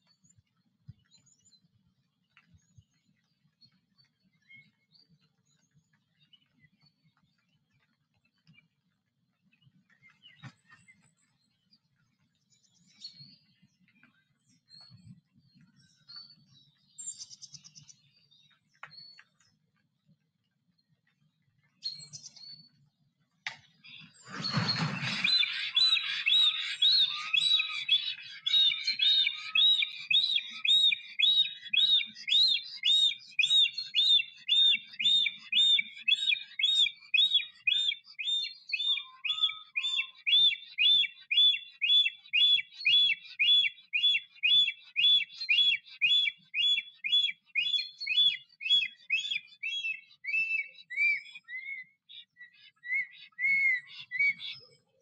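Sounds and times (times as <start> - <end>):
bird repeated whistling notes: 23.9 - 52.0, 52.7 - 54.6
rush of bird wings: 24.0 - 26.8.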